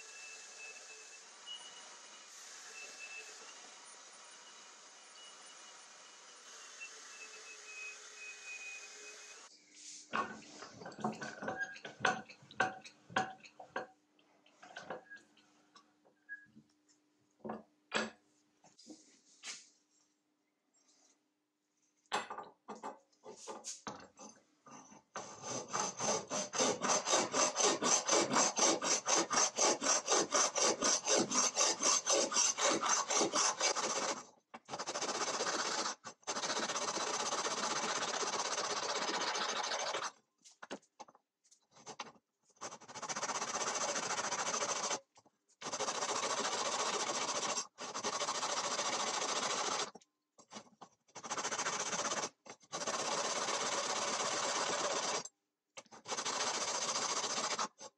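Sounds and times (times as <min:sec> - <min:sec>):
hand file rasping on metal: 0:25.2 - 0:40.1, 0:42.6 - 0:45.0, 0:45.6 - 0:49.9, 0:51.1 - 0:55.2, 0:56.0 - 0:57.9.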